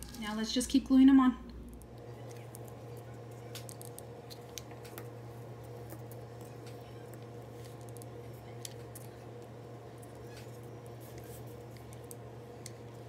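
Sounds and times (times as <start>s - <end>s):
steady low hum: 0.0s - 13.0s
seashells clicking and tapping: 1.6s - 5.1s, 5.8s - 9.5s.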